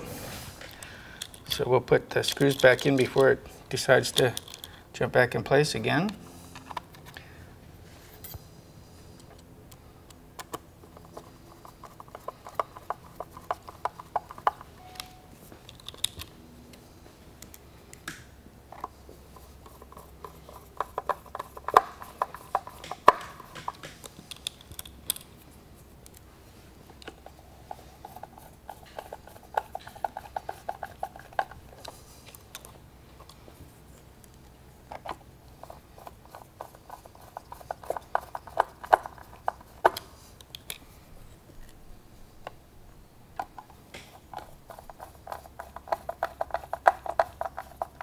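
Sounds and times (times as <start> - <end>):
screwdriver clicking and scraping: 0.6 - 4.8, 10.4 - 16.3, 18.7 - 26.3, 26.9 - 40.9, 43.4 - 48.0.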